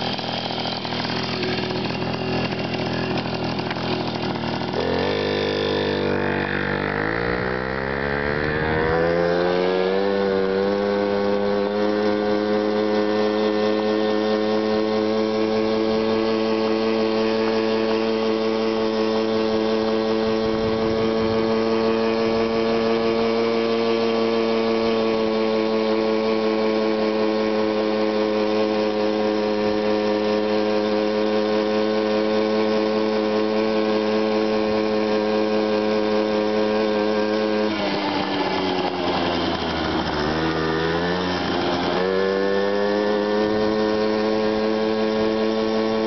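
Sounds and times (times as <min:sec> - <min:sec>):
moped engine running: 0:00.0 - 0:46.0.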